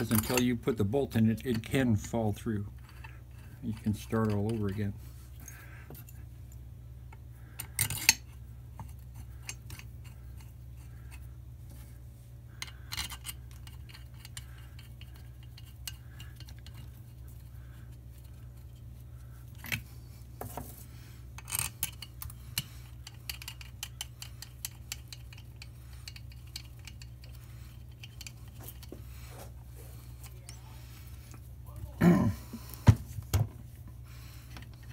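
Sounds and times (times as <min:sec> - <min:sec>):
metal parts knocking and clicking: 0:00.0 - 0:00.6, 0:07.6 - 0:10.5, 0:12.6 - 0:17.0, 0:21.4 - 0:28.9
steady low hum: 0:00.0 - 0:34.9.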